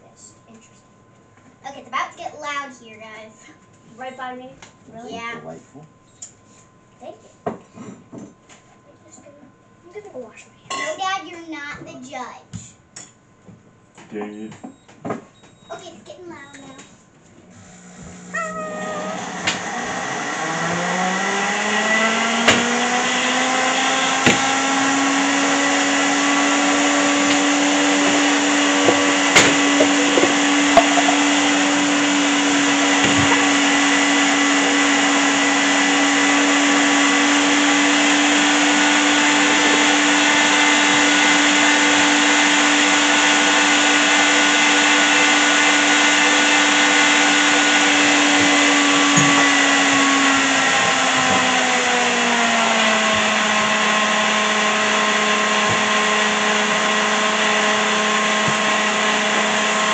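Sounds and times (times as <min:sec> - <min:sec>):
electric blender running: 0:17.4 - 0:59.9.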